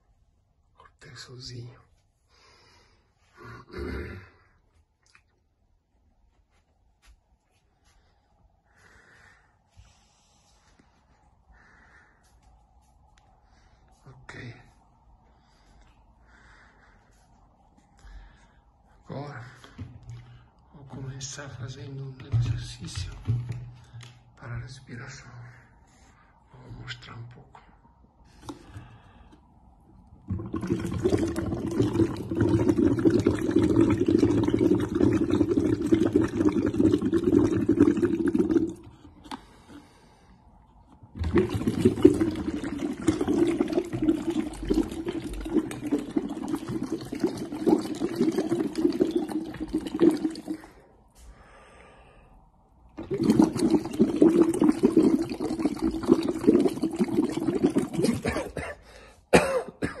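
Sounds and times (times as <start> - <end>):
breath bubbling through tube into water: 30.0 - 40.0, 41.1 - 50.8, 53.0 - 58.4.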